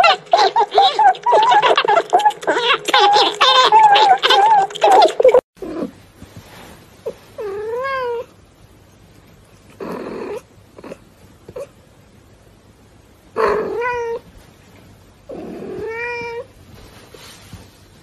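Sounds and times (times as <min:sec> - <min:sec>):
cat meowing: 0:00.0 - 0:05.9, 0:15.5 - 0:16.5.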